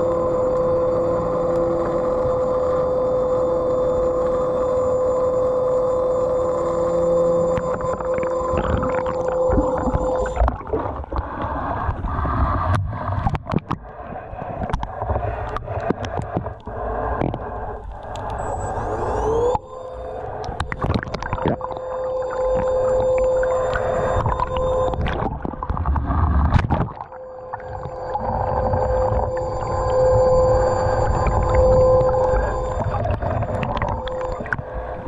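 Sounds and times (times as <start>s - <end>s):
underwater thruster whine: 0.0s - 35.0s
sharp clicks and crackles: 7.5s - 18.8s, 20.4s - 30.0s, 31.0s - 34.7s
water sloshing: 20.4s - 34.8s.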